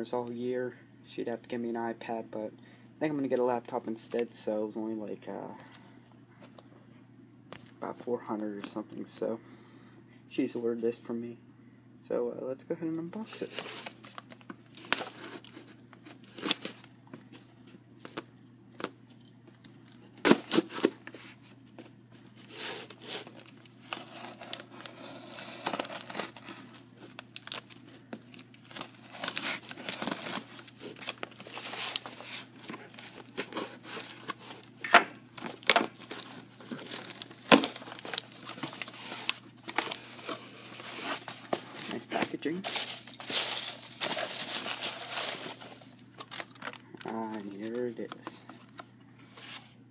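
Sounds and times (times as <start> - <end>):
tape crinkling and tearing: 13.3 - 16.9, 20.2 - 48.8.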